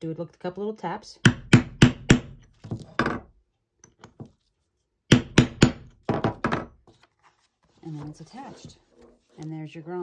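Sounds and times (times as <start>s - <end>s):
hammer tapping metal tool: 5.1s - 6.7s.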